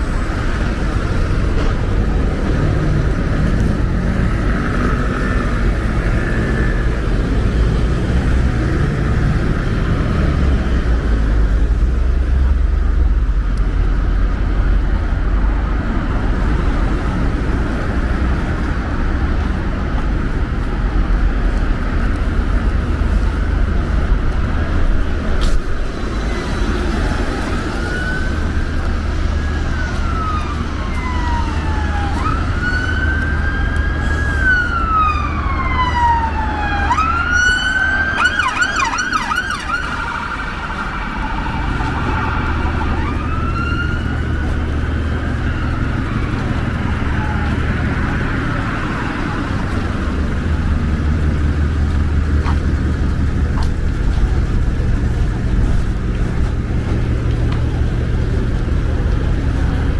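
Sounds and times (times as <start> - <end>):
street traffic rumble: 0.0 - 59.9
emergency siren wailing: 26.0 - 50.7.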